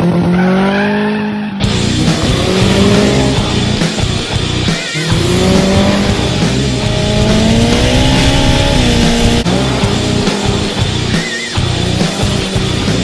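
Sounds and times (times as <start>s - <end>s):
race car engine accelerating: 0.0s - 13.0s
tire squeal: 0.2s - 3.6s.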